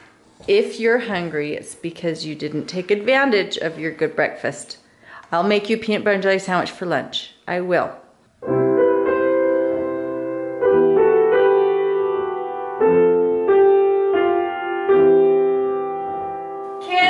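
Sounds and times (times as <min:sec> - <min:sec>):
slow piano chords: 0:08.4 - 0:17.0.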